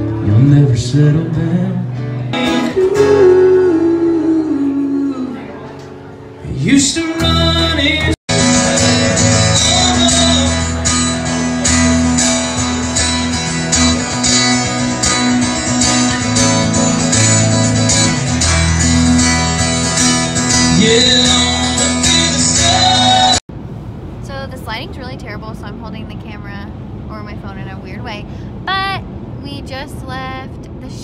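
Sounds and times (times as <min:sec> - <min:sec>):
acoustic guitars strumming: 0:00.0 - 0:23.4
person singing: 0:02.5 - 0:05.7, 0:06.4 - 0:11.0, 0:20.4 - 0:23.4.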